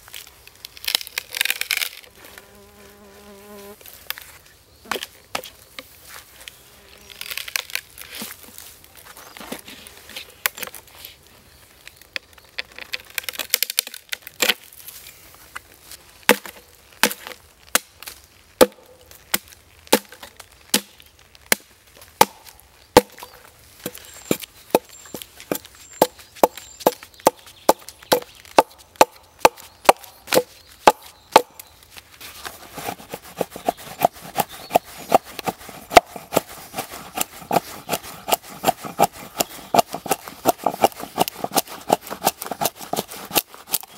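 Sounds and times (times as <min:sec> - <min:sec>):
axe chopping wood: 0:16.3 - 0:17.9, 0:18.6 - 0:31.6, 0:32.7 - 0:43.9.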